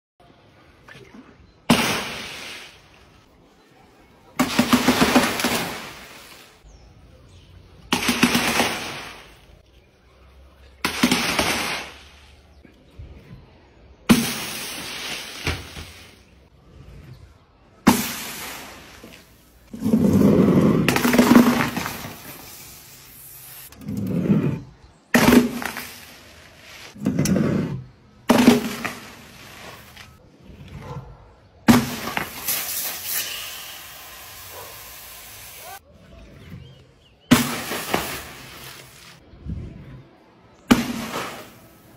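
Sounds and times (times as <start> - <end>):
balloons bursting against board: 10.8 - 12.0, 37.3 - 39.2
hiss of spraying drink: 32.4 - 35.8.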